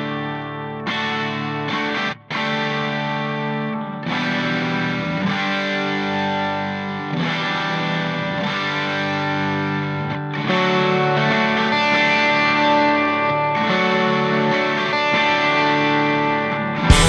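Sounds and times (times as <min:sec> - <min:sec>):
distorted electric guitar chords: 0:00.0 - 0:17.0.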